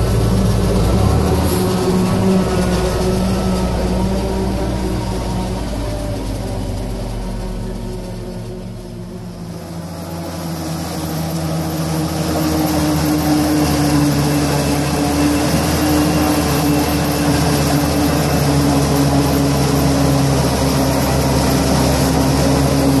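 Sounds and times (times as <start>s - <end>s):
tractor engine under load: 0.0s - 23.0s.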